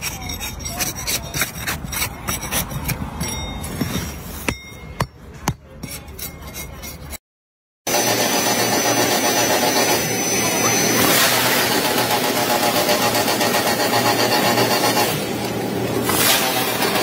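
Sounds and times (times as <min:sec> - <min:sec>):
blade scraping wood: 0:00.0 - 0:04.4
machine whirring with fast pulse: 0:07.9 - 0:15.4.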